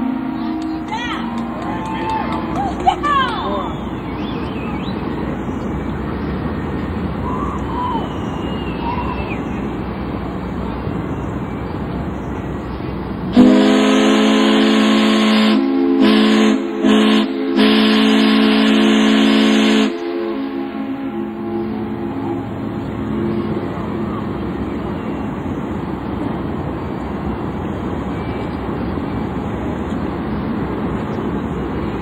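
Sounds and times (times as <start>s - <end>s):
faint whistled glides: 3.4s - 13.0s, 21.2s - 27.0s, 27.7s - 29.4s
ship's steam whistle blast: 13.4s - 22.6s.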